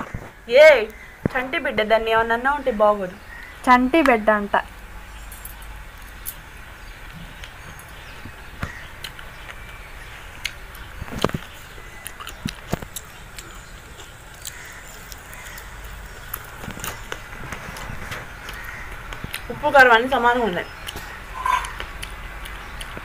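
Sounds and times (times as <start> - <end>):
person chewing crunchy food: 8.6 - 19.5, 20.8 - 23.0
mouth clicks: 10.4 - 19.5, 20.6 - 23.0.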